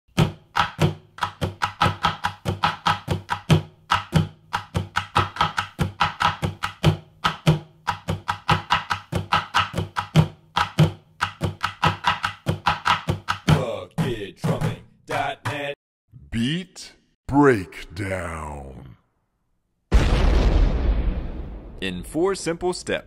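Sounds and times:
drumsticks on plastic buckets: 0:00.1 - 0:15.8.

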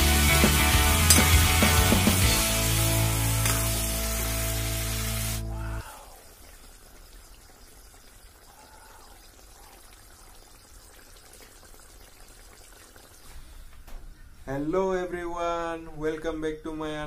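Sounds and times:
curry bubbling in a wok: 0:05.9 - 0:13.5.

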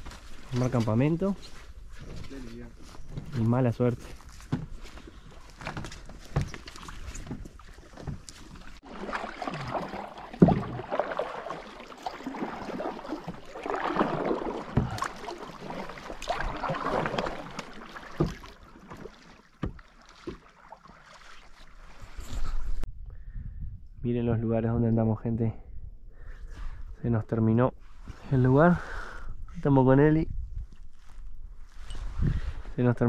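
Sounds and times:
paddle strokes splashing water: 0:04.7 - 0:22.6.

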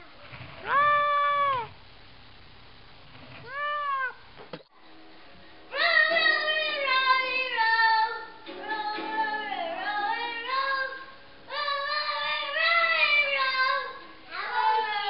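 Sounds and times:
child singing held notes: 0:05.7 - 0:15.0.

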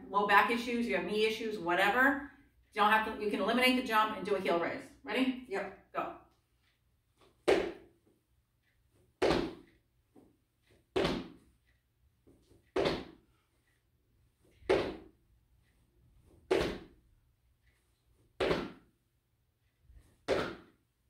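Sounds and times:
feet thudding on wooden floor: 0:07.4 - 0:07.8, 0:09.2 - 0:09.7, 0:11.0 - 0:11.4, 0:12.8 - 0:13.2, 0:14.6 - 0:15.1, 0:16.5 - 0:17.0, 0:18.4 - 0:18.8, 0:20.3 - 0:20.7.

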